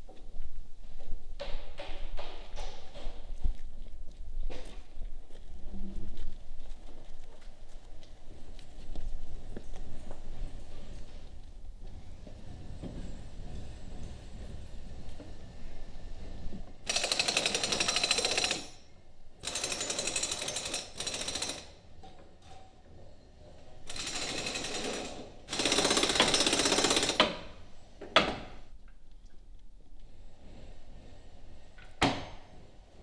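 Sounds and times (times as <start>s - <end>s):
power tool hammering rattle: 16.8s - 18.8s, 19.4s - 21.8s, 23.9s - 27.5s.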